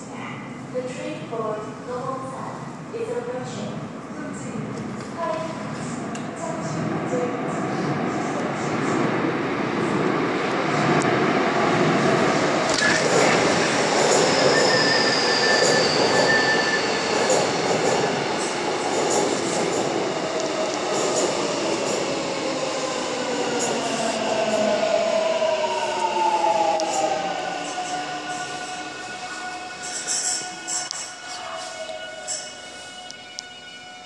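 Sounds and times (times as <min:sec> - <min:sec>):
train wheels rumbling on rail: 0:09.8 - 0:28.9.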